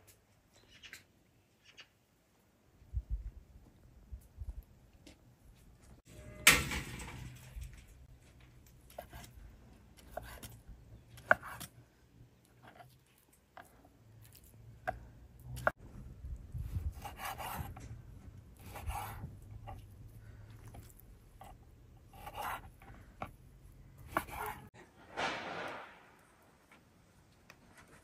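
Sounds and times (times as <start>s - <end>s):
meat scraping across board: 18.6s - 19.9s, 20.6s - 23.4s, 24.0s - 24.7s.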